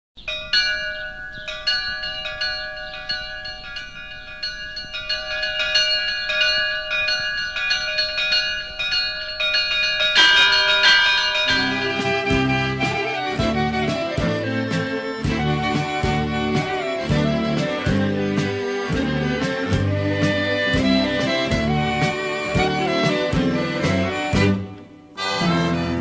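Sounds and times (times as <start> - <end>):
church bells ringing: 0.2 - 14.2, 15.0 - 26.0
low music notes: 10.8 - 26.0.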